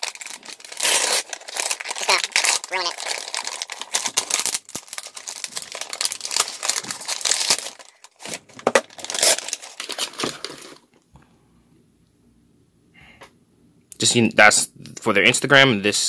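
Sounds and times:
packaging crinkling and tearing: 0.0 - 10.9.

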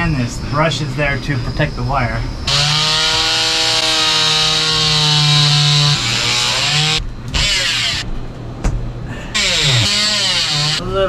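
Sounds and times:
oscillating multi-tool cutting: 2.5 - 8.1, 9.4 - 10.8.

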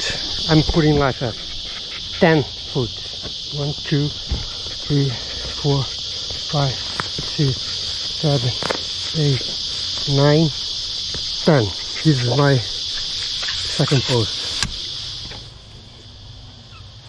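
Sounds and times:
high-pitched insect chorus: 0.0 - 17.0
man counting aloud: 2.2 - 4.2, 4.8 - 7.6, 8.2 - 10.6, 11.4 - 12.8, 13.8 - 14.3.

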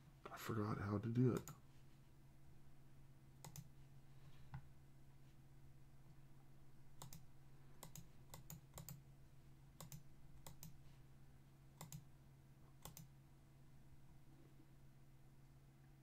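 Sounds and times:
faint low hum: 0.0 - 16.0
computer mouse clicks: 1.3 - 1.6, 3.4 - 3.7, 7.0 - 9.0, 9.8 - 10.8, 11.8 - 12.1, 12.8 - 13.1.

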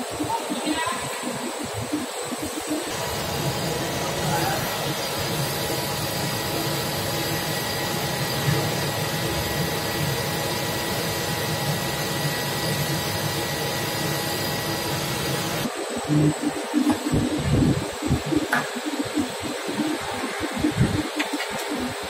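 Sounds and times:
faint whine tones: 0.0 - 22.0
pump motor hum and hiss: 0.0 - 22.0.

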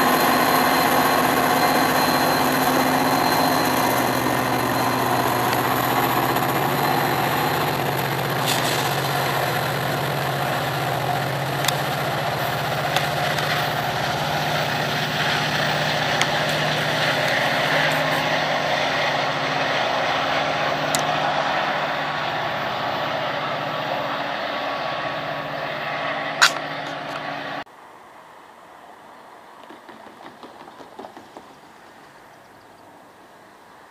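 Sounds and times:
diesel locomotive engine running: 0.0 - 27.7
sharp click: 26.4 - 27.2.

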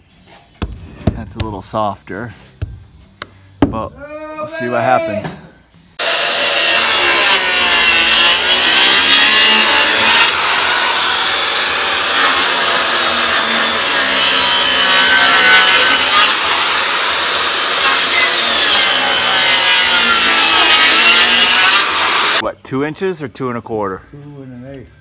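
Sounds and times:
circular saw cutting wood: 6.0 - 22.4.

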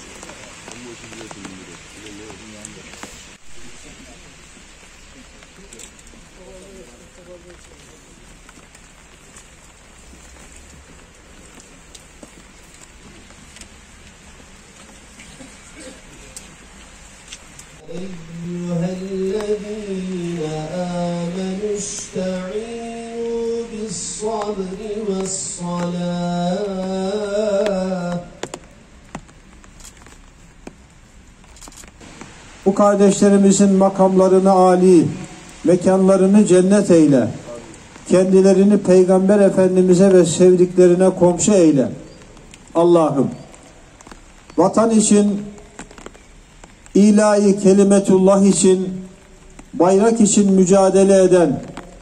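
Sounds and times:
outdoor background hiss: 0.0 - 52.0
man chanting: 17.8 - 28.6, 32.6 - 42.1, 42.7 - 43.5, 44.6 - 45.7, 46.9 - 51.9.

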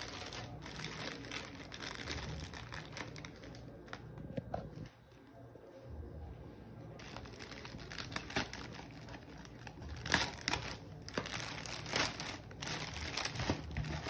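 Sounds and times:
plastic wrapping crinkling: 0.0 - 4.9, 7.0 - 14.0.

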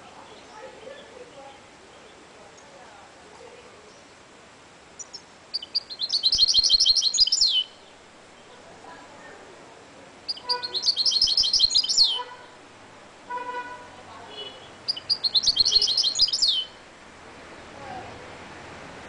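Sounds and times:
bird singing high notes: 5.0 - 7.8, 10.3 - 12.6, 14.5 - 16.8.

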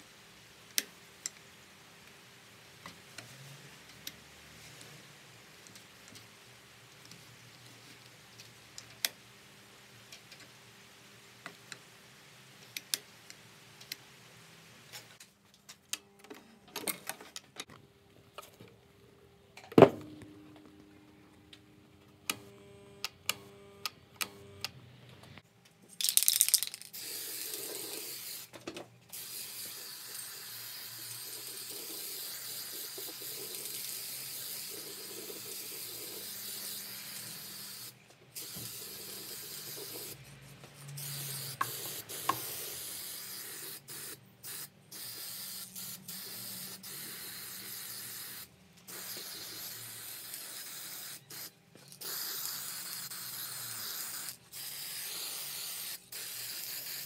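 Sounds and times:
spray paint can hissing: 26.0 - 28.5, 29.1 - 40.2, 40.9 - 57.0.

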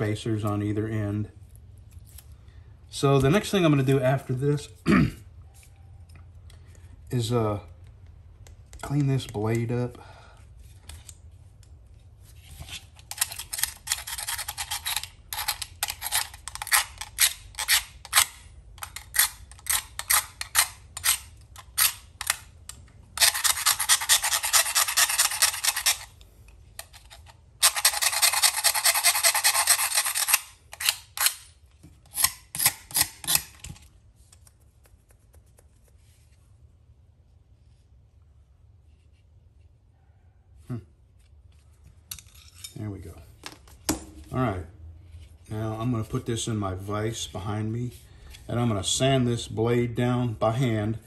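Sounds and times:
knife blade scraping steel: 12.6 - 22.4, 23.2 - 26.1, 26.8 - 33.8, 42.1 - 42.8.

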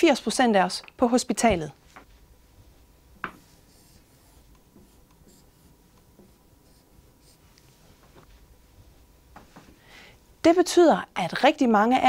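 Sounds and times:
marker tip tapping whiteboard: 3.2 - 3.6
marker scratching on whiteboard: 3.2 - 7.6.

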